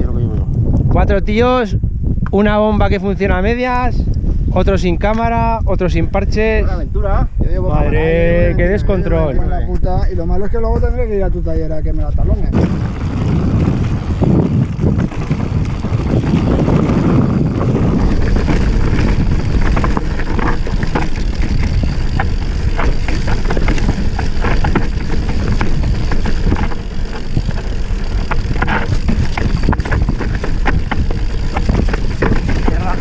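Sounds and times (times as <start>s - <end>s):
wind rumbling on microphone: 0.0s - 33.0s
bike knocking and rattling: 12.5s - 33.0s
tyres on loose gravel: 12.5s - 33.0s.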